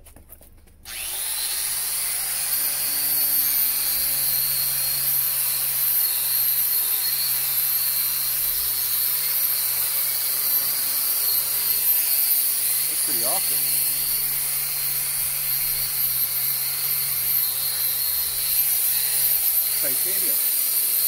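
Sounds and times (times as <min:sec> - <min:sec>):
wire wheel grinder on metal: 0:00.9 - 0:21.0.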